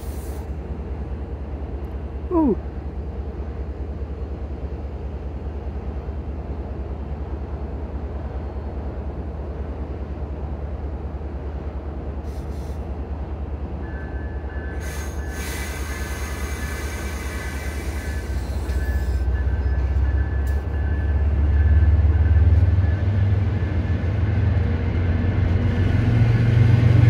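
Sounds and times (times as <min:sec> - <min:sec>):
train engine drone: 0:00.0 - 0:27.0
loud hiss: 0:14.8 - 0:18.8.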